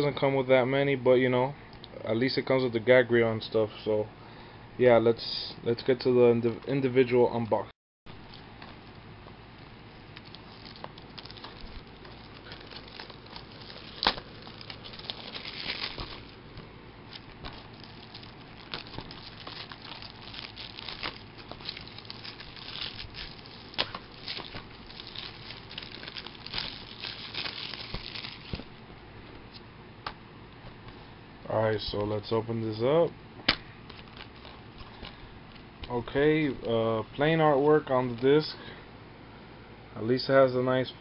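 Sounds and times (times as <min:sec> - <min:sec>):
plastic wrap crinkling: 0:10.0 - 0:28.8, 0:33.8 - 0:36.7.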